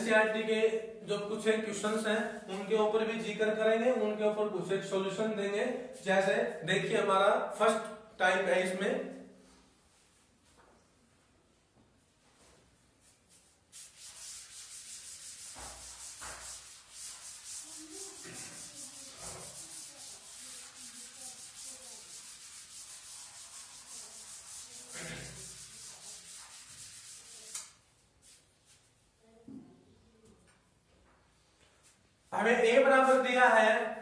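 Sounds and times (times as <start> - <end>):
duster scrubbing chalk off blackboard: 12.9 - 28.8.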